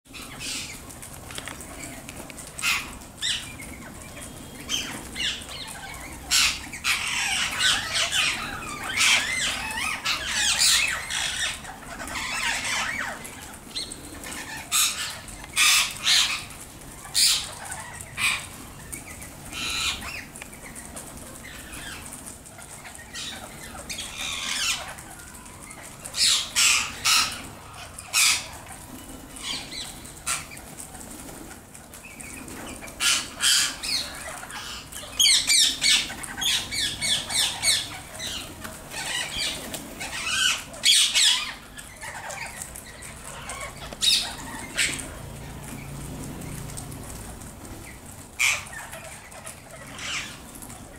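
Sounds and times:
parakeets screeching: 0.1s - 1.0s, 2.6s - 50.9s
wings flapping: 0.1s - 50.9s.

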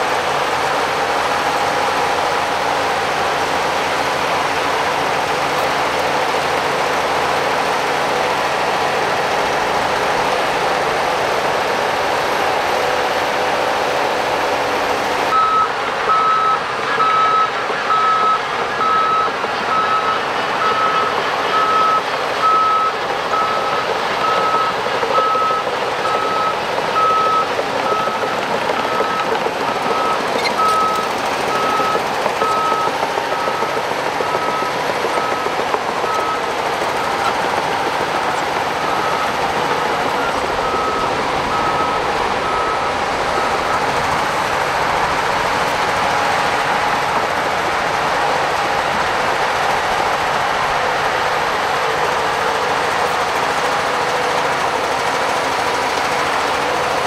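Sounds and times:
bulldozer diesel engine and tracks: 0.0s - 57.0s
reverse alarm beeping: 15.3s - 37.3s, 38.8s - 44.0s.

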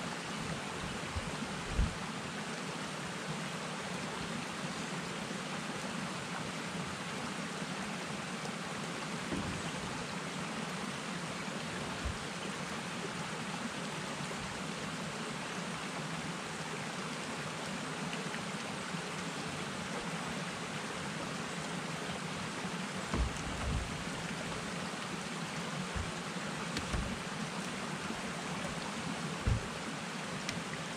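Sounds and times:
steady rain falling: 0.0s - 30.9s
faint knocks of poles: 9.3s - 10.2s, 23.0s - 30.8s.

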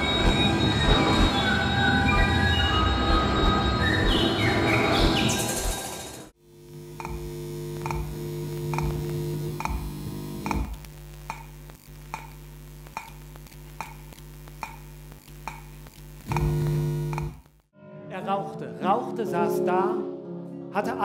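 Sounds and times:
sharp pulsing click: 10.4s - 17.6s.

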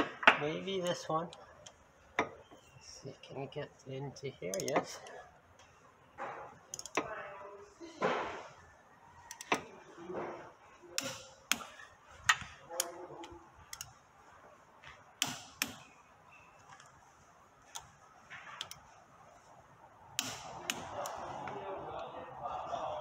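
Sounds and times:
torque wrench clicks: 6.7s - 7.1s.

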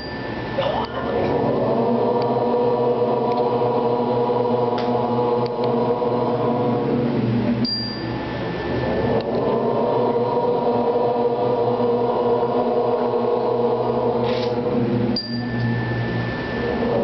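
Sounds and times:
group chanting om: 0.5s - 7.4s, 8.8s - 15.1s
short high ding: 7.6s - 8.2s.

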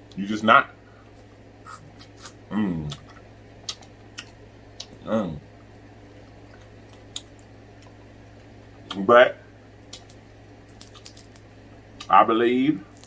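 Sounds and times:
wet mouth clicks and smacks: 1.7s - 5.0s, 6.5s - 8.0s, 9.8s - 11.4s.

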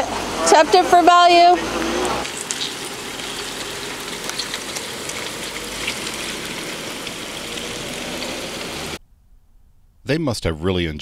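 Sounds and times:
steady rain on pavement: 0.0s - 9.0s
raindrop ticks: 2.2s - 9.0s.

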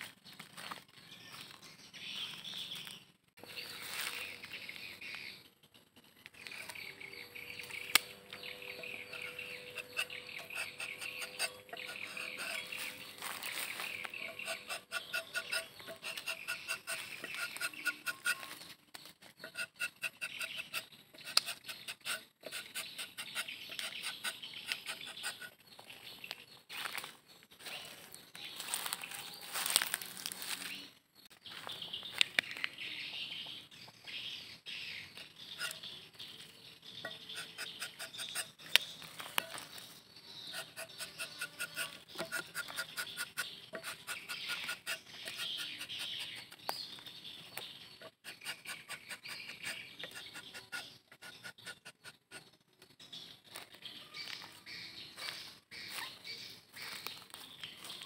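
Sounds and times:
knife scraping tree bark: 7.6s - 25.6s, 35.2s - 35.9s, 37.0s - 46.8s, 47.9s - 52.5s.

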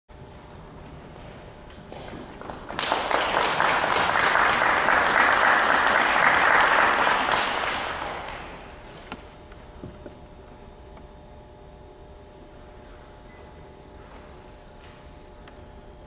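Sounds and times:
audience applauding: 2.0s - 9.0s.

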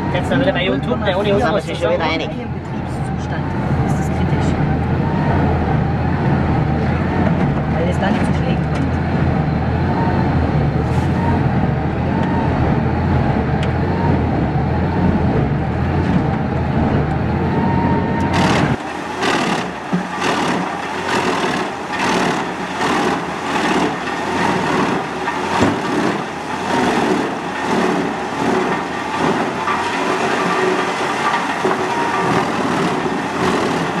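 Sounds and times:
low engine drone: 0.0s - 34.0s
wood chipper cracking logs: 18.2s - 34.0s.

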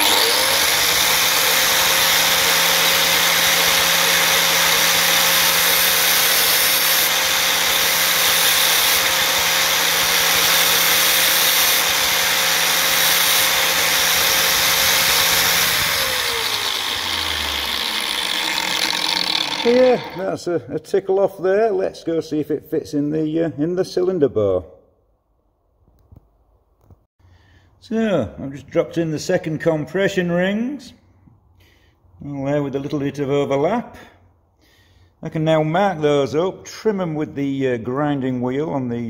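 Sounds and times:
angle grinder grinding metal: 0.0s - 20.4s
grinder winding down whine: 0.0s - 20.4s.

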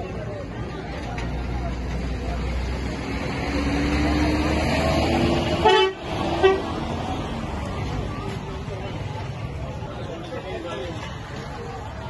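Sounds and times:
street traffic hum: 0.0s - 12.0s
vehicle horn tooting: 5.6s - 6.7s.

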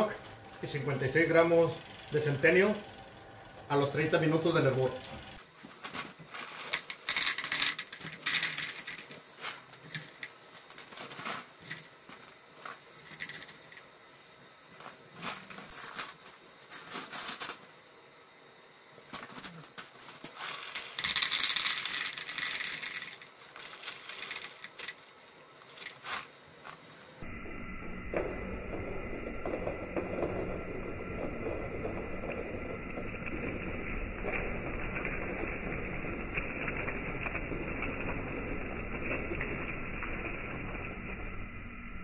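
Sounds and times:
pellets pattering on plastic: 19.1s - 26.8s, 28.1s - 41.1s
bag crinkling: 20.4s - 24.9s.

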